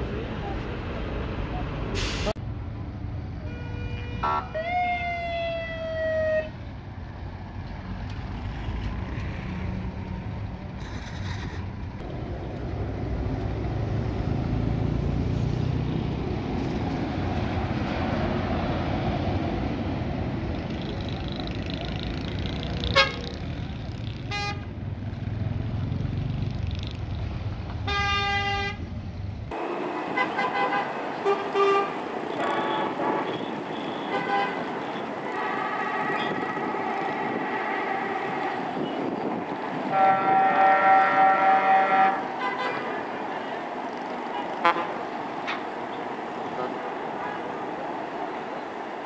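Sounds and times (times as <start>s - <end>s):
traffic din: 0.0s - 49.0s
truck horn blast: 3.5s - 4.6s, 22.9s - 23.4s, 24.3s - 24.6s, 27.9s - 28.8s, 30.2s - 36.7s, 39.8s - 43.0s, 44.3s - 45.0s
diesel truck engine rumbling: 6.6s - 49.0s
pulsing multi-tone horn: 30.2s - 36.7s, 39.8s - 43.0s, 44.3s - 45.0s.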